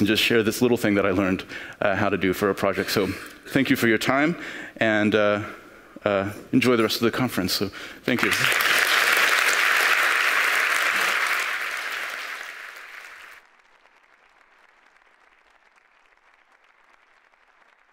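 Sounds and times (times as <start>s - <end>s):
audience applauding: 8.1s - 17.9s.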